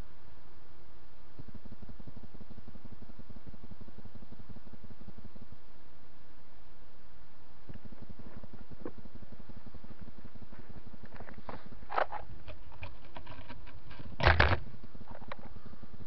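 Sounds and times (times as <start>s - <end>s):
clicks and rustles: 9.9s - 15.6s.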